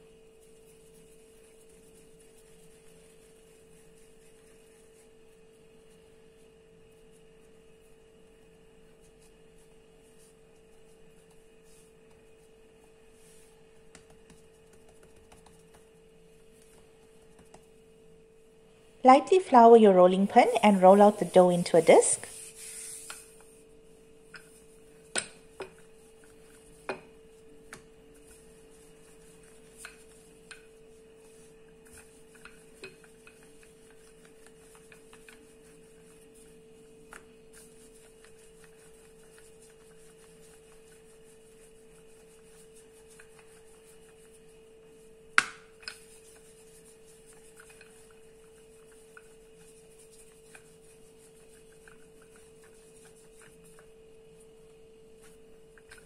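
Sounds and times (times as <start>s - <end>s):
faint steady hum: 0.0s - 56.0s
rolling pin knocking on countertop: 45.4s - 46.0s.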